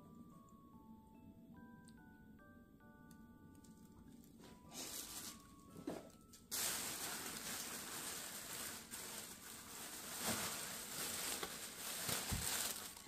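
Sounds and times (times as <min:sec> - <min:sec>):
plastic bag rustling: 0:04.3 - 0:13.0.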